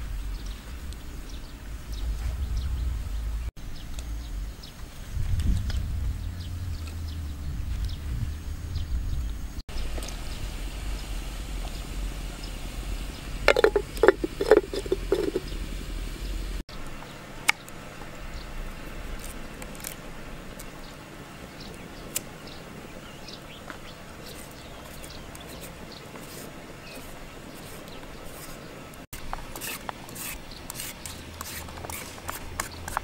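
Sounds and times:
low rumble: 0.0 - 9.6
peeler scraping carrot: 24.3 - 28.6, 29.5 - 33.0.

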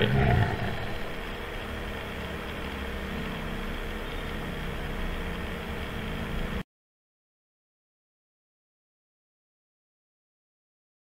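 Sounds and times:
faint hum tones: 0.0 - 6.6.

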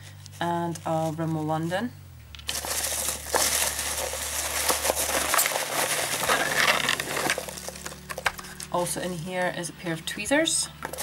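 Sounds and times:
hands rummaging in packing peanuts: 2.4 - 8.8.

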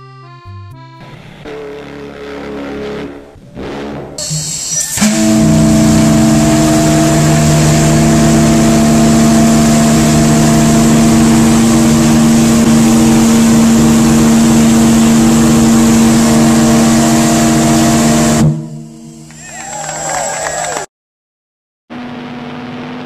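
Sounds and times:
deep steam whistle blast: 1.5 - 20.9
steam hissing: 4.2 - 19.5.

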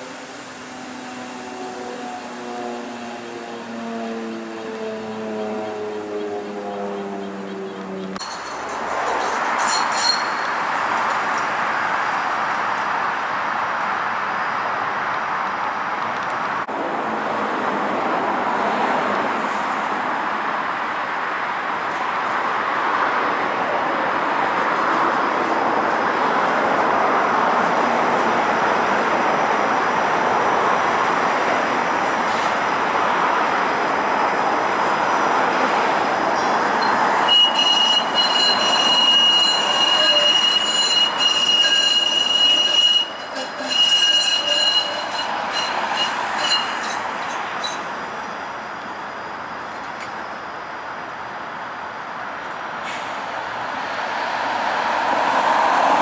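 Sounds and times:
streetcar rumbling on track: 0.0 - 56.0
wheels squealing on curve: 8.2 - 10.8, 34.3 - 48.0.

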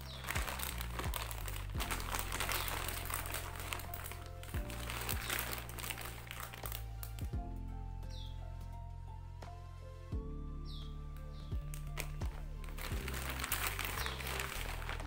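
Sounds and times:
plastic bag crinkling: 0.0 - 7.3, 11.5 - 15.0
calm electronic music: 0.0 - 15.0.

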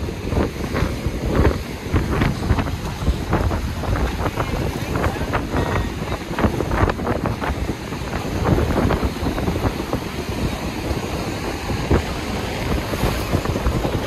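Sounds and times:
wind buffeting microphone: 0.0 - 14.0
surf breaking against rocks: 11.5 - 14.0.

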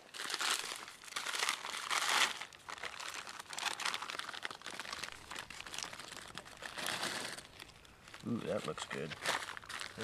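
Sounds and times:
plastic pouch crinkling: 0.0 - 10.0.

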